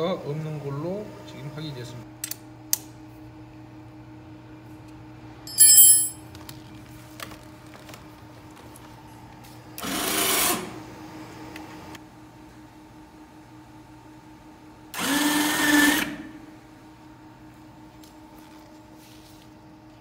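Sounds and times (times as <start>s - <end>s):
sharp metallic clatter: 5.5s - 6.2s.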